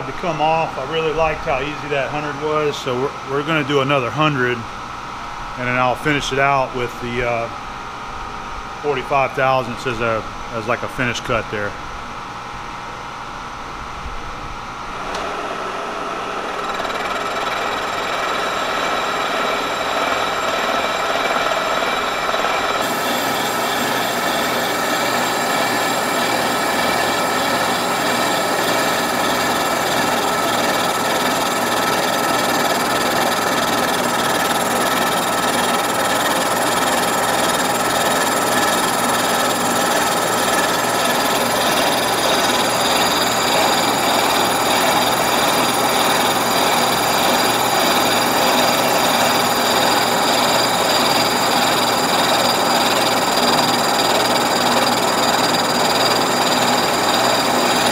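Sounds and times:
milling machine cutting metal: 15.0 - 57.9.

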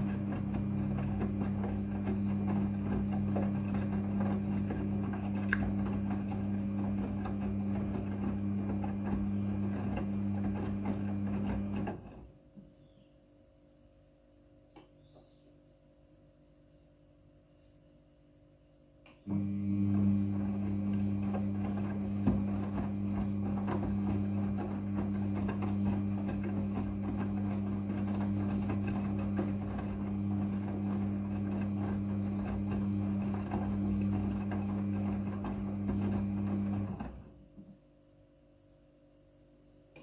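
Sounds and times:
washing machine motor hum: 0.0 - 12.5, 19.2 - 37.6.

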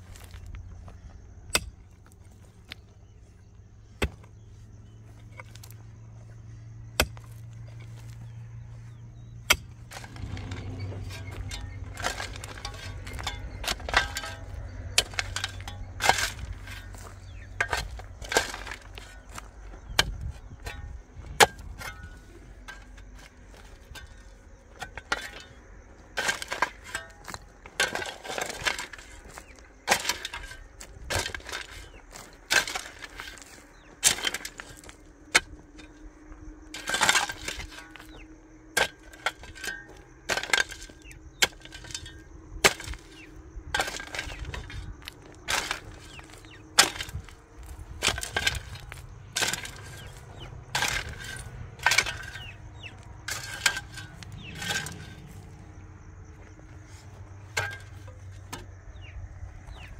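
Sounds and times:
shovel scraping earth: 0.0 - 59.9
metal tool striking stone: 48.0 - 55.4.

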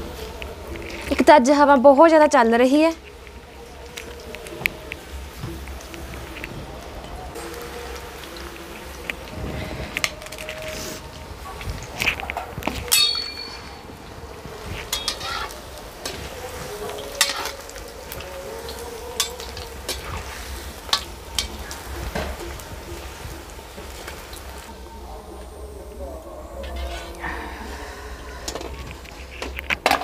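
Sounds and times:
low wind rumble: 0.0 - 29.9
metal spoon clinking on pan: 12.9 - 13.8, 14.9 - 16.2, 17.0 - 17.7, 19.2 - 20.0
batter sizzling in hot oil: 14.0 - 24.8.

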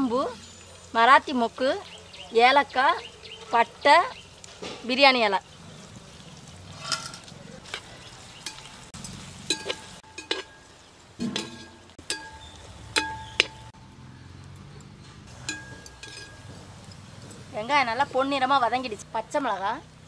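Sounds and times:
onions sizzling in oil: 0.0 - 13.8
metal skimmer clinking against pot: 8.4 - 13.7, 15.2 - 17.5
sharp ringing metal strikes: 9.5 - 13.8, 15.4 - 16.5.

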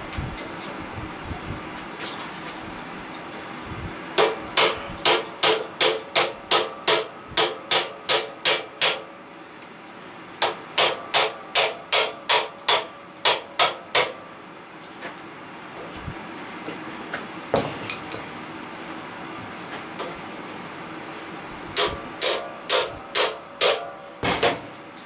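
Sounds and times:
hammer tapping metal with ringing: 10.4 - 14.2, 21.8 - 24.4.

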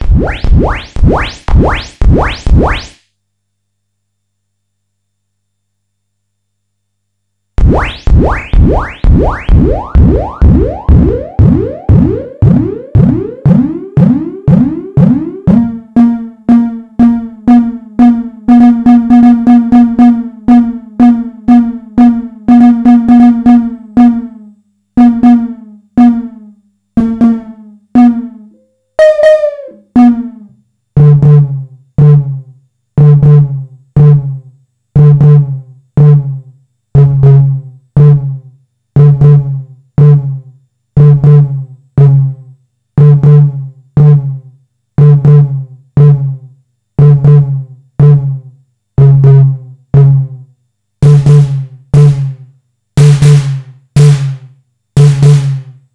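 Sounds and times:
electronic snare drum hits: 0.0 - 3.0, 7.6 - 24.3, 25.0 - 32.3, 43.0 - 44.4, 47.0 - 48.4, 51.0 - 55.8.

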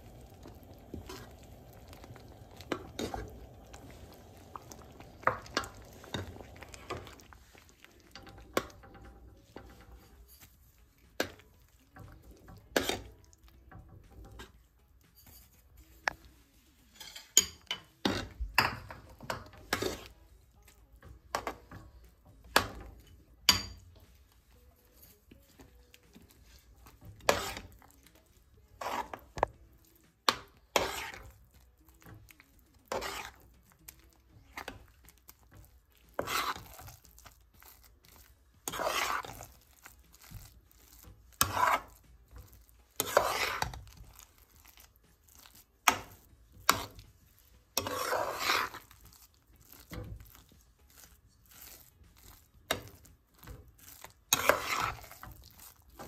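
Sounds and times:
metal spatula scraping a pan: 0.0 - 56.0.

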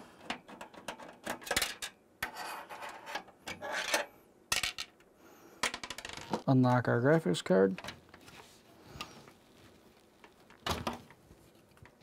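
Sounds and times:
metal bracket scraping: 0.9 - 4.1.

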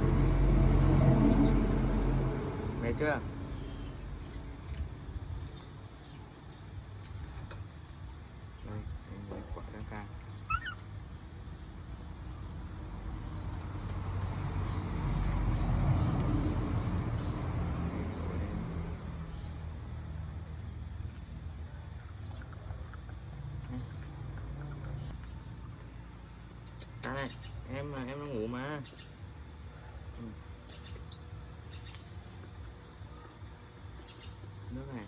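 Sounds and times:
low rumbling background noise: 0.0 - 35.0
high bird chirps: 26.6 - 27.8.

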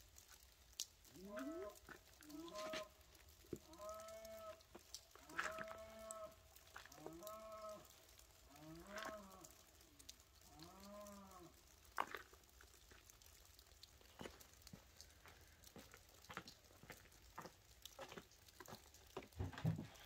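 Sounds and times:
cattle mooing: 1.2 - 2.9, 7.0 - 7.9, 8.5 - 9.5.

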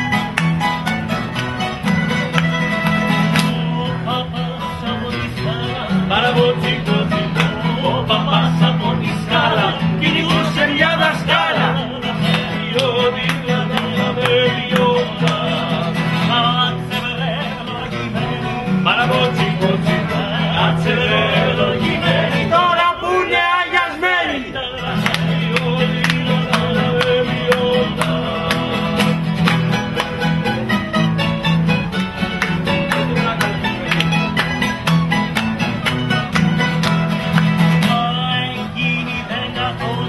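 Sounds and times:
acoustic guitars and mandolins strummed: 0.0 - 40.0
men singing together: 3.4 - 29.4, 37.8 - 40.0.

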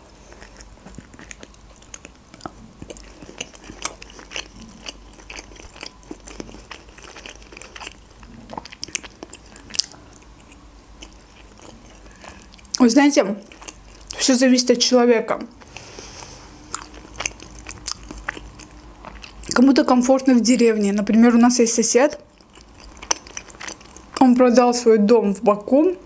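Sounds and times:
person chewing: 0.0 - 12.8, 13.4 - 14.2, 15.5 - 19.6, 22.2 - 24.2.

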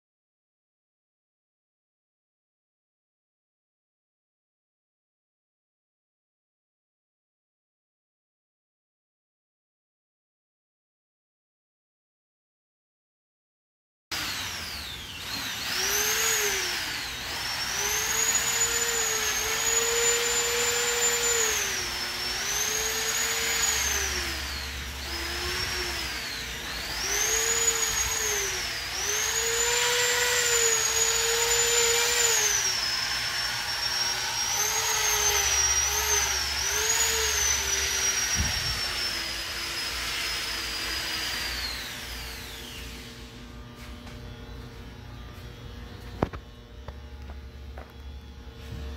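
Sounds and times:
machine whine gliding in pitch: 14.2 - 48.9.

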